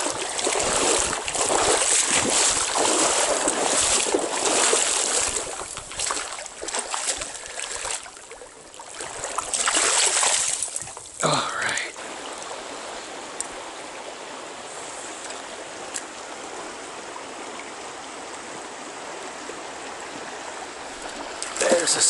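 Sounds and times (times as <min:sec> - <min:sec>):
wind noise: 0:00.0 - 0:07.6
rushing river water: 0:00.0 - 0:22.0.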